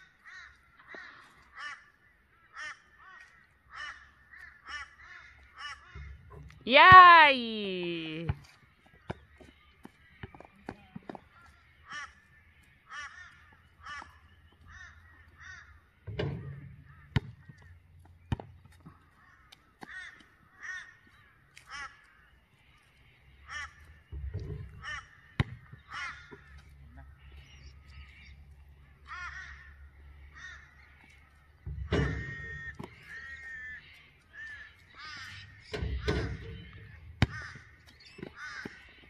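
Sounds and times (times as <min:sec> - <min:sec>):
crow cawing: 0:14.7 - 0:15.8, 0:19.2 - 0:21.0, 0:29.1 - 0:30.8, 0:38.4 - 0:38.8
basketball hitting court: 0:16.1 - 0:17.5, 0:25.4 - 0:25.7, 0:37.2 - 0:38.3.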